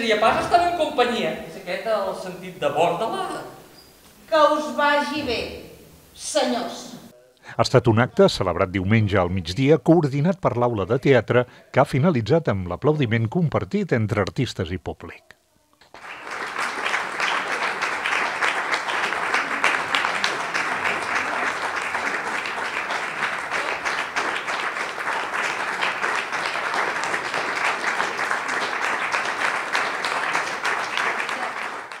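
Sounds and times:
audience applauding: 15.8 - 32.0.

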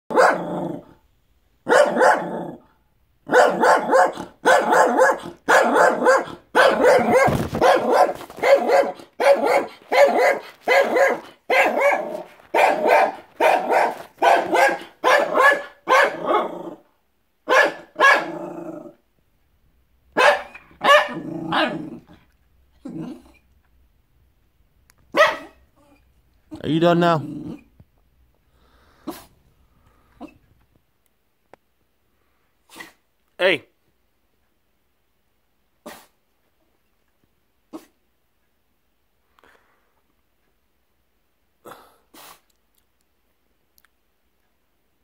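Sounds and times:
small dog barking: 0.1 - 0.9, 1.6 - 16.8, 17.4 - 18.5, 20.2 - 22.1, 25.1 - 26.0.

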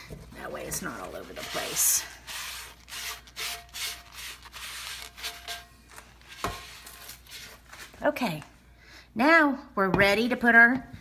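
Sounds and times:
hand rubbing a frying pan: 0.3 - 7.9.

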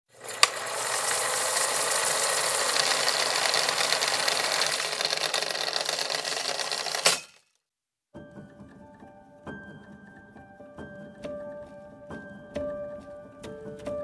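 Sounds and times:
film projector clatter and whir: 0.1 - 7.4.

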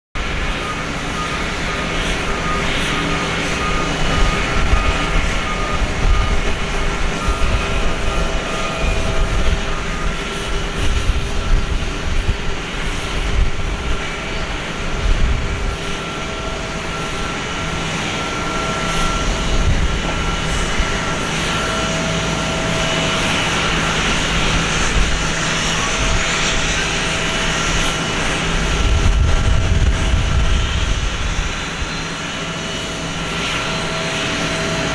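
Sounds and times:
jet engine whine: 0.2 - 34.9
low rumble: 28.6 - 31.5.

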